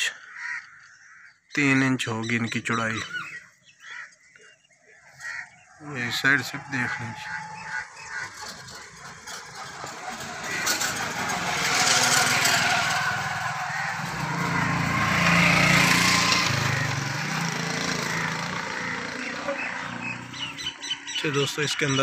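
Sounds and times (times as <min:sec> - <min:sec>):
rushing noise of passing vehicle: 0:05.9 - 0:21.2
vehicle engine running: 0:05.9 - 0:21.4.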